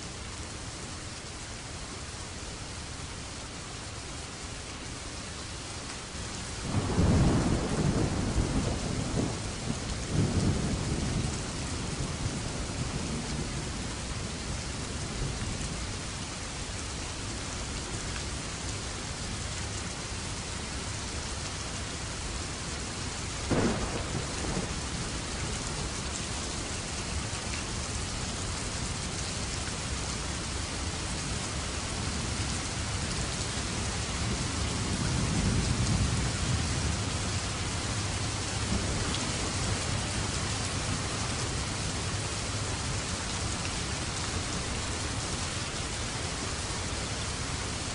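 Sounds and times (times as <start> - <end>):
steady rain: 0.0 - 47.9
low thunder rumble: 6.6 - 15.8, 23.4 - 29.0
thunder crack: 23.5 - 24.8.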